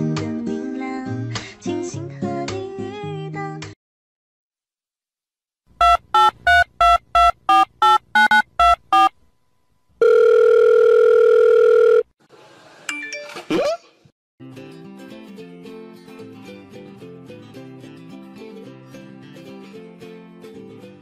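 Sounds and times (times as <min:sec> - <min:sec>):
long steady phone tone: 0:05.8 - 0:09.1, 0:10.0 - 0:12.1
telephone keypad beeps: 0:05.8 - 0:09.1, 0:10.0 - 0:12.0.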